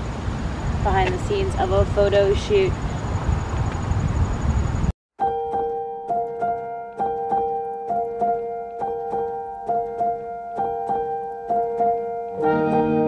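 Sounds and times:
keyboard repeating note pattern: 0:05.2 - 0:13.0.

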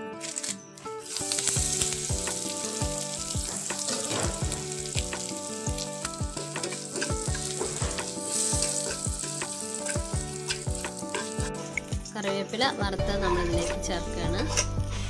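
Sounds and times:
leaves frying in oil: 0:00.2 - 0:12.2
metal ladle scraping pan: 0:06.4 - 0:11.8.

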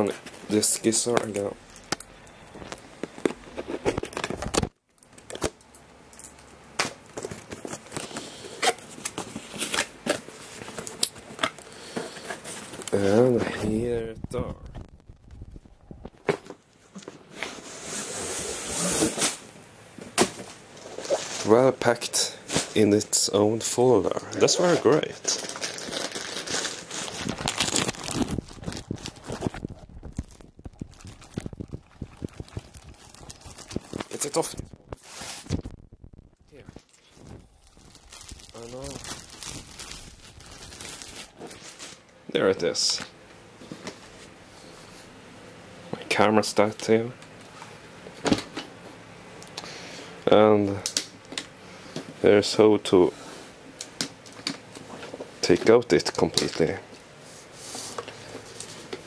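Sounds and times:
cardboard and plastic bag rustling: 0:24.4 - 0:42.1
plastic wrapping crinkling: 0:24.4 - 0:42.1.

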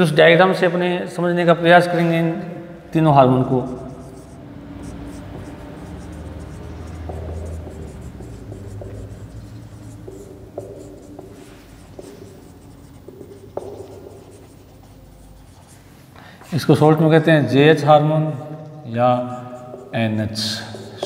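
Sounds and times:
marker writing on whiteboard: 0:03.4 - 0:16.6, 0:18.9 - 0:21.0
sharp taps: 0:06.8 - 0:11.3.

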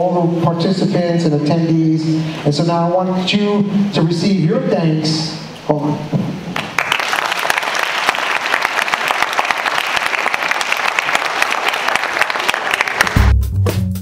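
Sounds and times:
audience applauding: 0:06.6 - 0:13.3
drum-led music: 0:13.0 - 0:14.0.

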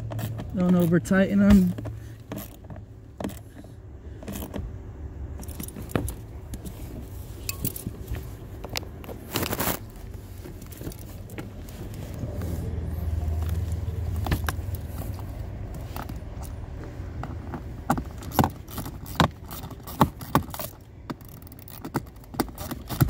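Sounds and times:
low steady hum: 0:00.0 - 0:23.0
hand tools clinking on metal: 0:07.4 - 0:08.0.

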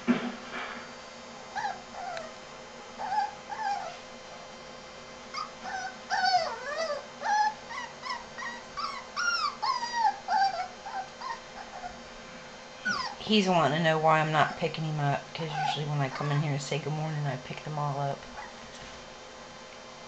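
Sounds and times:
puppy whining: 0:01.5 - 0:02.4, 0:03.0 - 0:04.1, 0:05.3 - 0:12.1, 0:12.8 - 0:13.3, 0:15.4 - 0:16.4, 0:18.3 - 0:18.6.

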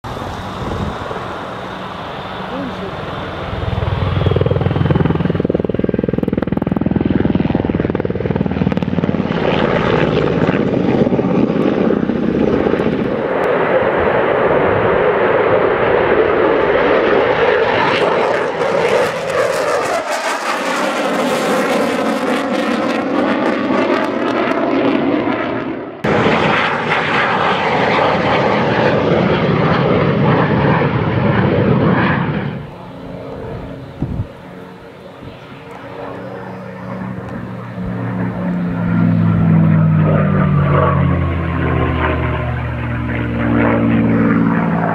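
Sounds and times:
helicopter flying past: 0:00.0 - 0:44.9
jet roar: 0:00.0 - 0:44.9.

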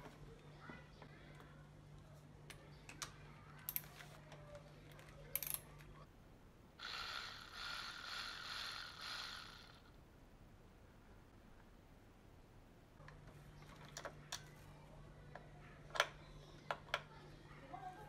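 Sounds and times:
cordless driver motor whir: 0:06.8 - 0:09.9.

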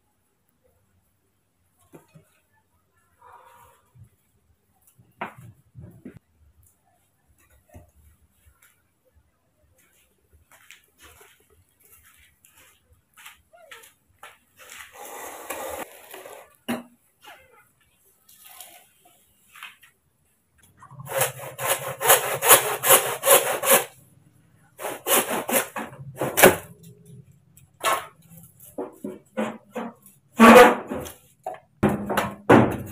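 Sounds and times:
handsaw rasping through bamboo: 0:14.9 - 0:16.5, 0:21.1 - 0:24.0, 0:24.8 - 0:26.5.

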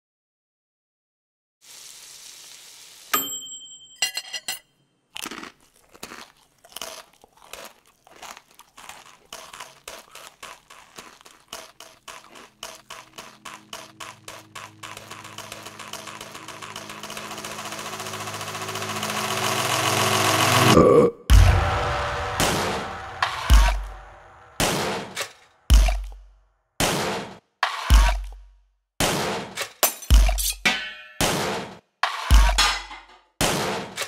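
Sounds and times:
sharp hit with ringing tone: 0:03.2 - 0:04.5
paper bags crinkling: 0:06.8 - 0:17.3.

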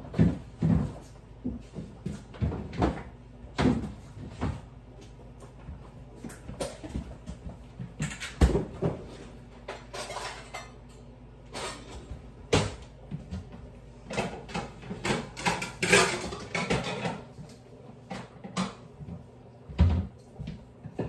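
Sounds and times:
dishes and cupboards knocking: 0:00.0 - 0:04.7, 0:06.4 - 0:10.7, 0:12.5 - 0:17.3, 0:18.1 - 0:20.2.

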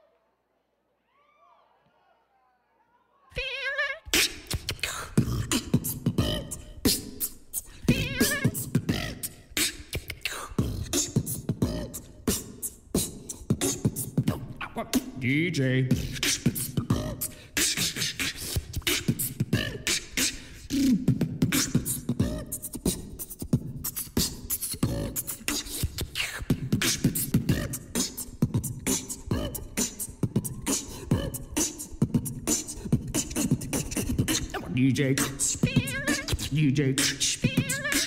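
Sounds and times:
dance music with vocals: 0:03.4 - 0:12.6, 0:24.3 - 0:38.0.

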